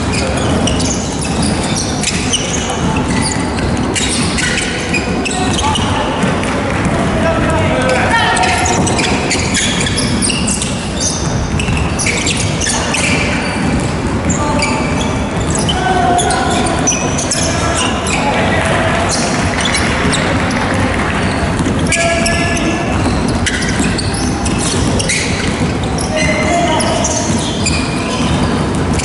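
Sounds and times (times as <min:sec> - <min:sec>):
basketball bouncing: 0:00.0 - 0:29.0
sneaker squeaks: 0:00.0 - 0:29.0
players shouting: 0:07.0 - 0:10.0.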